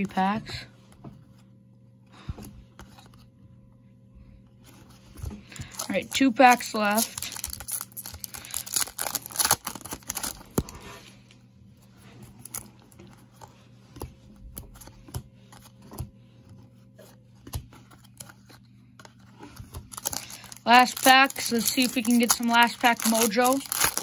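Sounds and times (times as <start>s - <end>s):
cards clicking and rustling: 4.7s - 10.8s, 17.0s - 24.0s
foil wrapper crinkling and tearing: 5.5s - 10.8s, 19.8s - 24.0s.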